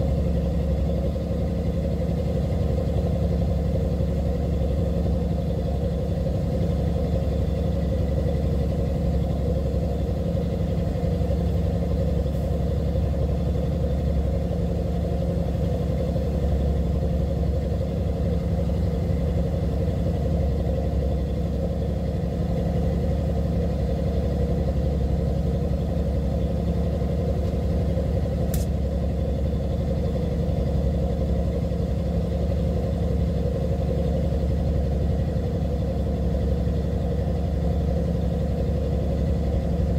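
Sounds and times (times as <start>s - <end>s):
boat diesel engine droning: 0.0s - 39.9s
sharp click: 28.5s - 28.8s.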